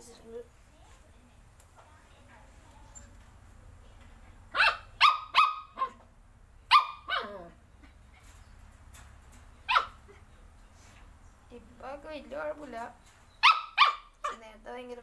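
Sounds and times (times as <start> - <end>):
dog barking: 4.5 - 6.0, 6.7 - 7.4, 9.7 - 10.0, 13.4 - 14.4.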